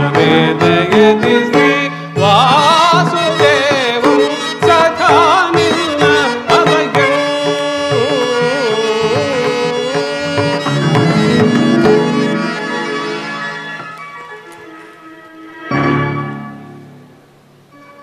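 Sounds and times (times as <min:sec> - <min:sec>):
ornamented melody over drone: 0:10.2 - 0:14.8
drum strokes: 0:10.3 - 0:13.9.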